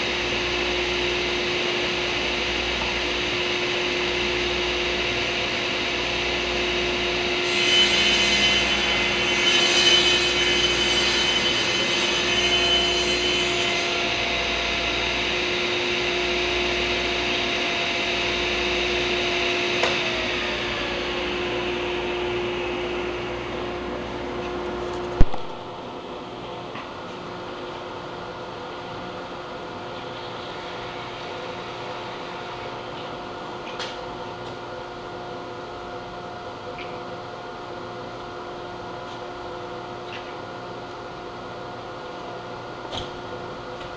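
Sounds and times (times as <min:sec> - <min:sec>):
table saw running: 0:00.0 - 0:25.7
saw blade cutting wood: 0:07.2 - 0:15.0.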